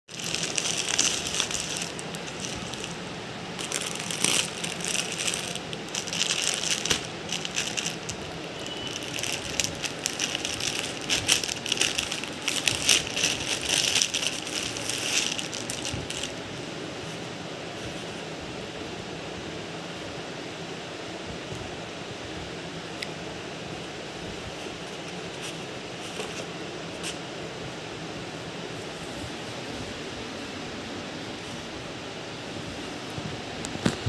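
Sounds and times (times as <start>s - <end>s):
plastic packaging crinkling: 0.1s - 16.6s.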